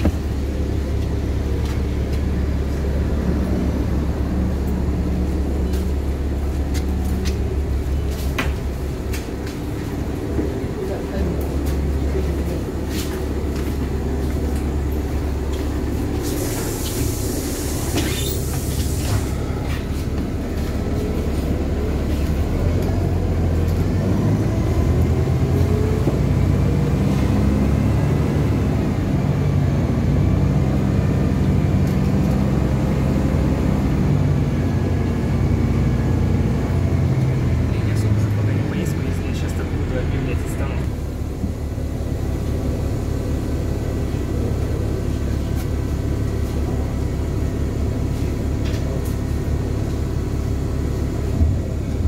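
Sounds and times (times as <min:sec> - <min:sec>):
bus diesel engine running: 0:00.0 - 0:52.0
compressed air hiss: 0:16.2 - 0:19.4.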